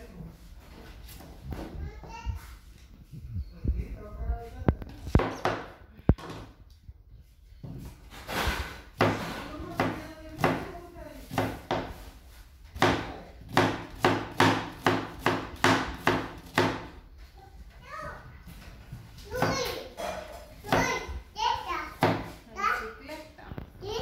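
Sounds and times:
knife chopping on plastic board: 0:09.0 - 0:12.1, 0:12.8 - 0:17.0, 0:20.6 - 0:21.0, 0:22.0 - 0:22.4.

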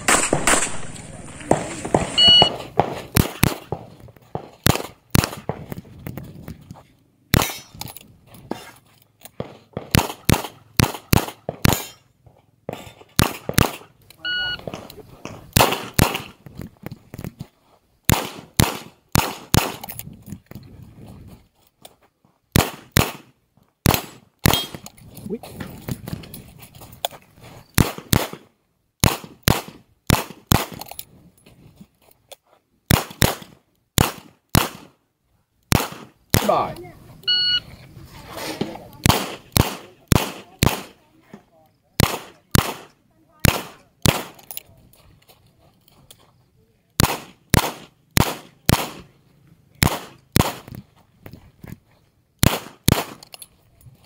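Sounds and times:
revolver shots: 0:00.0 - 0:02.6.

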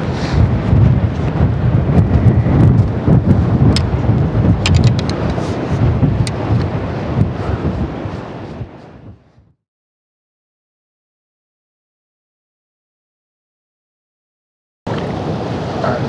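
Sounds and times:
wind: 0:00.0 - 0:09.6, 0:14.9 - 0:16.0.

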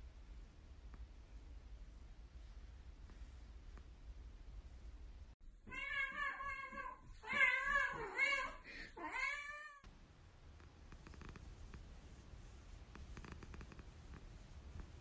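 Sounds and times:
cat meowing: 0:05.7 - 0:09.8.

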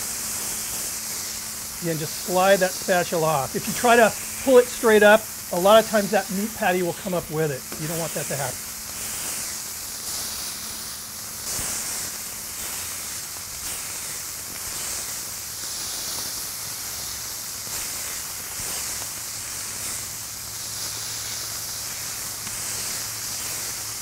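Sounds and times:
burger patties sizzling on griddle: 0:00.0 - 0:24.0.

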